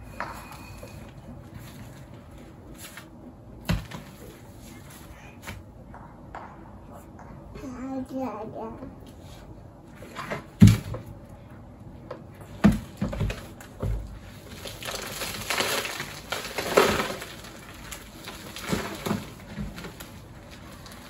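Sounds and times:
plants and soil rustling: 13.5 - 21.0.

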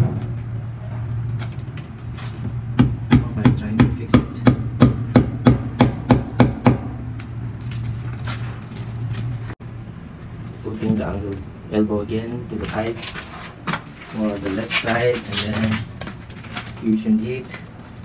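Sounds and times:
hammer striking concrete: 2.8 - 7.0.

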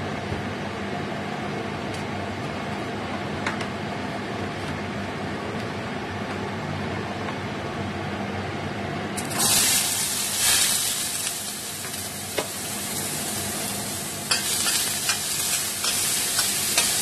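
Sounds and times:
fan-like hum and hiss: 0.0 - 17.0.

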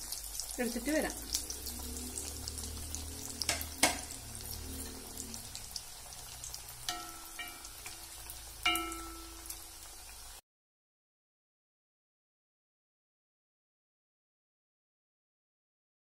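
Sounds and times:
food deep-frying in oil: 0.0 - 10.4
steel spoon striking pan: 6.8 - 9.8.

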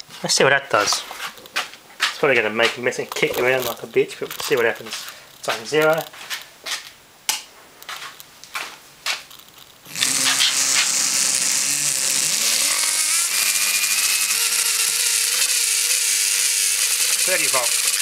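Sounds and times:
electric toothbrush motor whining: 9.9 - 18.0.

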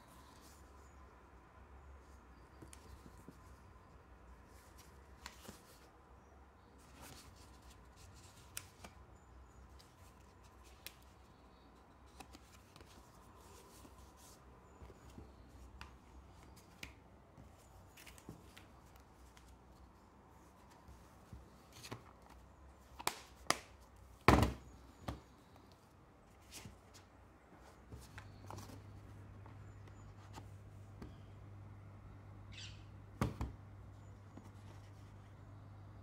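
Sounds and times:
paper pages rustling: 9.7 - 23.7.

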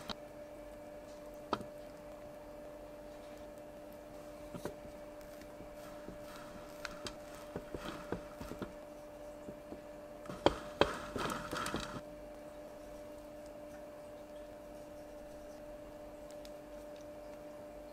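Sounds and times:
steady low hum: 0.0 - 17.9
palette knife scraping cream: 3.1 - 12.0.

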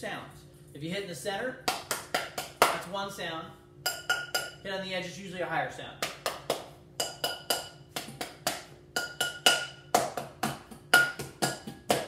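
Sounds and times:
hand striking metal pot: 3.8 - 4.6, 7.0 - 12.0.

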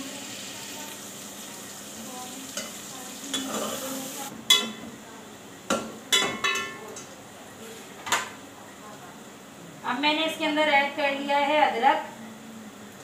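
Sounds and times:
onions sizzling in hot oil: 0.0 - 4.7.

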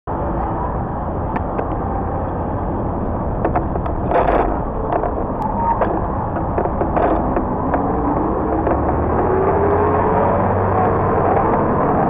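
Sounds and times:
bicycle rolling rumble: 0.1 - 12.0
bicycle rattling over bumps: 1.2 - 12.0
loud clatter: 3.0 - 12.0.

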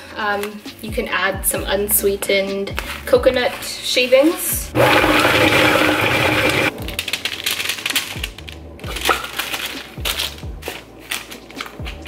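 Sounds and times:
food processor motor running: 4.8 - 6.7.

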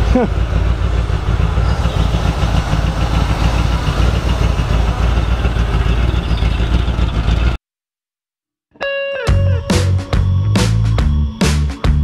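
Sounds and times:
truck engine idling: 0.0 - 7.6.

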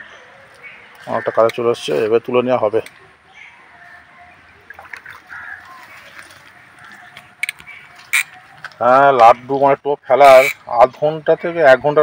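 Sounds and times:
pond water splashing: 2.7 - 9.7.

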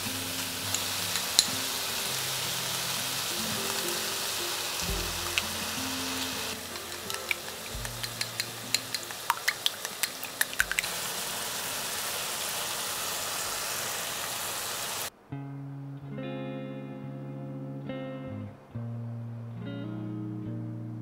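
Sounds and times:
acoustic guitar music: 0.0 - 10.8, 15.1 - 21.0
food sizzling in frying pan: 0.0 - 15.1.

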